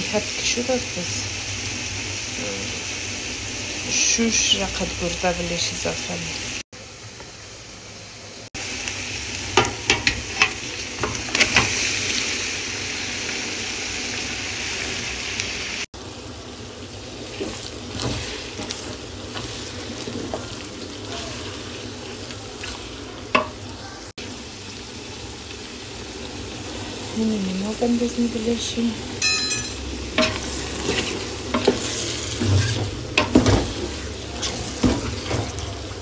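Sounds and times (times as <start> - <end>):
liver sizzling in hot oil: 0.0 - 29.2, 29.8 - 36.0
wooden spoon scraping and knocking: 30.1 - 35.6.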